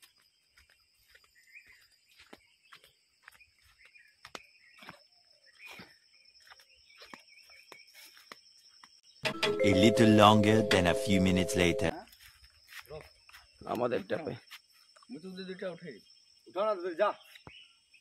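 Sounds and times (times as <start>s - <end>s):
footsteps on dirt path: 0.0s - 9.0s.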